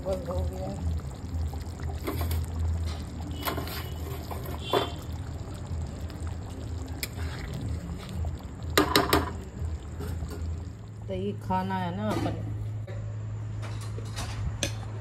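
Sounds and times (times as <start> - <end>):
water being poured: 0.0 - 11.1.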